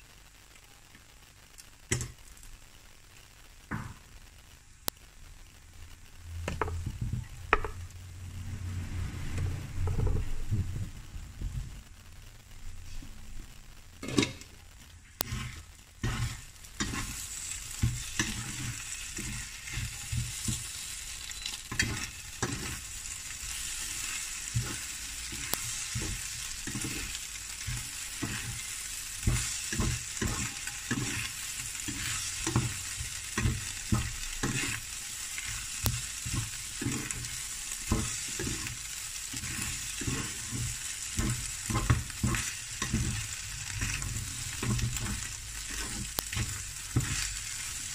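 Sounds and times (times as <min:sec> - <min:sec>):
potatoes and egg sizzling in pan: 0:00.0 - 0:47.9
plastic spatula scraping pan: 0:15.2 - 0:17.2, 0:39.3 - 0:47.9.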